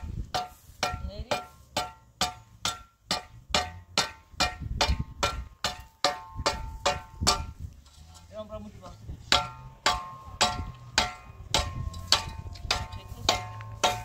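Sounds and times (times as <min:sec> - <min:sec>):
rhythmic metallic clanking: 0:09.2 - 0:14.0.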